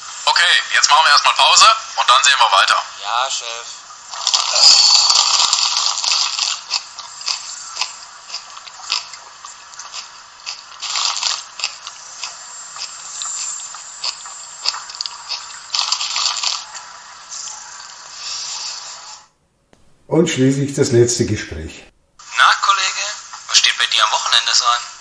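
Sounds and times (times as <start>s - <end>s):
crunching and scraping noise: 4.1s - 17.5s.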